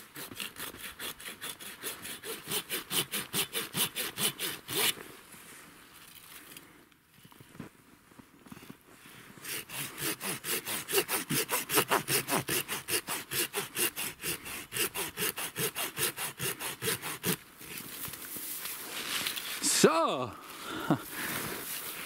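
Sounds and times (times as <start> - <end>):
hand saw cutting through wood: 0.0 - 5.0, 9.4 - 17.8.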